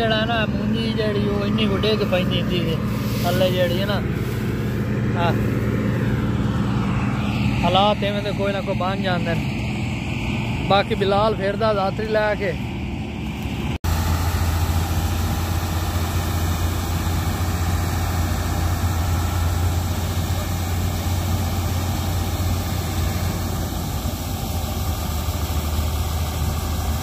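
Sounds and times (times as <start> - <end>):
combine harvester engine running: 0.0 - 27.0
auger pouring grain: 2.8 - 5.5, 13.9 - 27.0.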